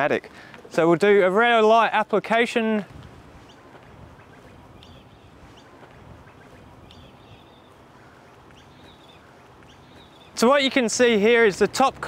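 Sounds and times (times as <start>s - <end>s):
faint outdoor background: 0.0s - 12.0s
birds chirping: 3.1s - 12.0s.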